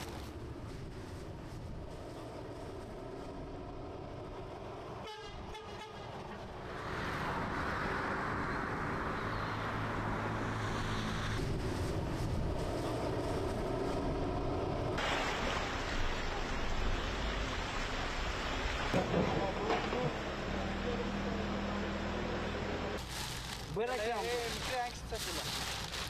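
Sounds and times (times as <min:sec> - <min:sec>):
wind: 0:00.0 - 0:26.0
rushing water: 0:14.8 - 0:21.2.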